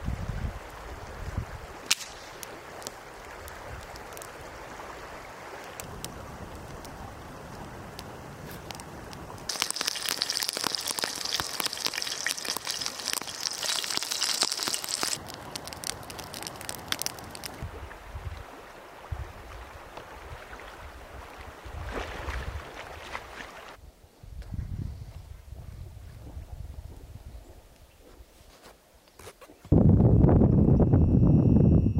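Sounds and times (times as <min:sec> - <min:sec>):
water splashing and rushing: 0:00.0 - 0:23.8.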